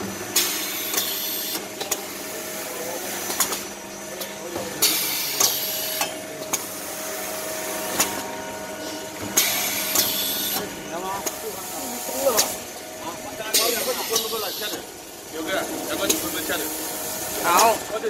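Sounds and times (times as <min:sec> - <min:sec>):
cutting machine humming: 0:10.3 - 0:18.0.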